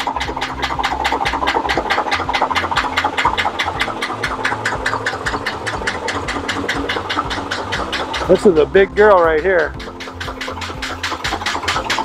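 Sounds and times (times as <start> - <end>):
engine knocking over low rumble: 0.0 - 12.0.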